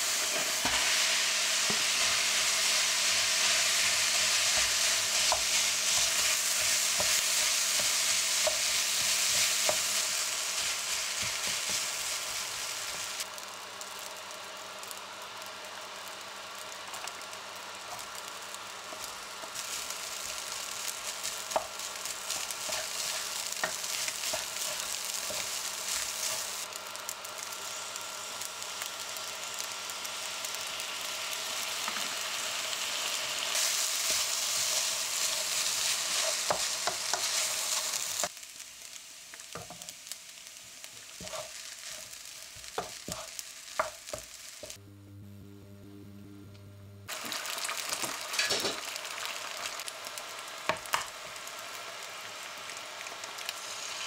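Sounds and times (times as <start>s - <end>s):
egg sizzling: 0.0s - 44.8s, 47.0s - 54.0s
rice sizzling in a frying pan: 0.0s - 44.8s, 47.1s - 54.0s
spatula scraping a pan: 41.2s - 44.2s
low hum: 44.8s - 47.1s.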